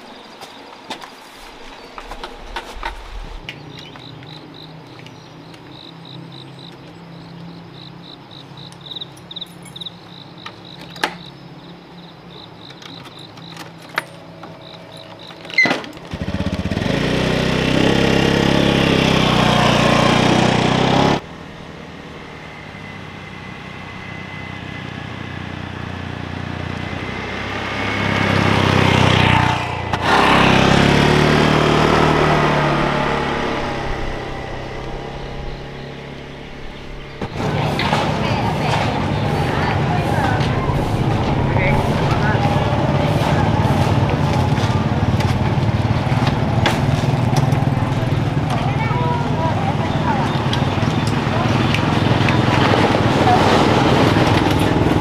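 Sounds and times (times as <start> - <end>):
insects chirping: 0.0 - 16.1, 30.2 - 43.2
small motorbike engine running: 15.2 - 21.4, 24.5 - 55.0.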